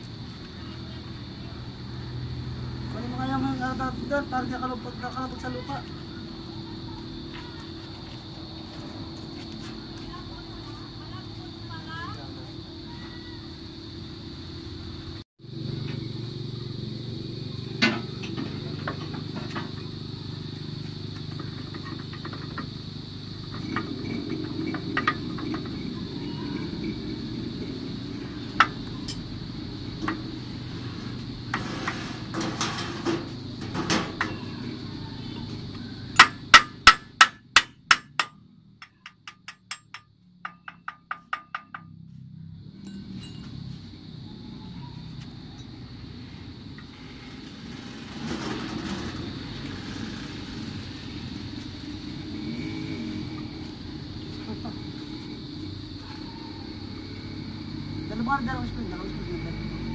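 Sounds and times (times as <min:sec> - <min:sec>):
hammer striking steel: 0:36.2 - 0:41.9.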